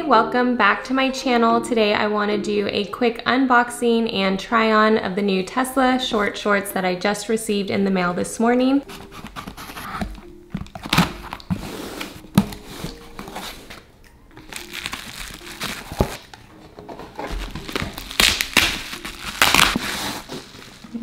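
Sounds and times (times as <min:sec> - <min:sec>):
soft instrumental music: 0:00.0 - 0:21.0
bubble wrap crinkling: 0:08.8 - 0:21.0
cardboard flaps rustling: 0:08.9 - 0:13.9, 0:14.5 - 0:21.0.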